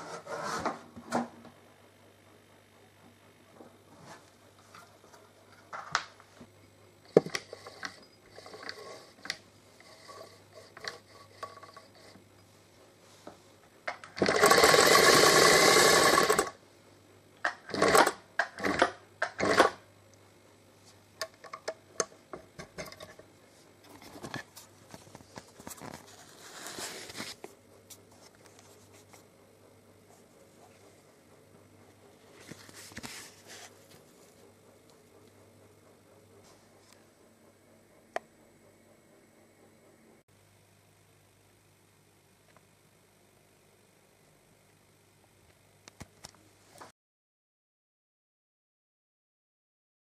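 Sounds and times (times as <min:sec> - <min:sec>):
sewing machine stitching: 0:07.2 - 0:12.2, 0:14.0 - 0:16.6, 0:17.5 - 0:19.8.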